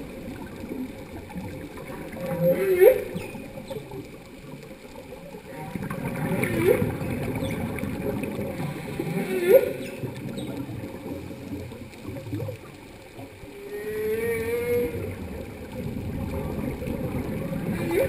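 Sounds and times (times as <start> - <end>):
humpback whale song: 1.8 - 4.6, 5.3 - 11.2, 13.4 - 18.0
water hiss: 6.0 - 12.8.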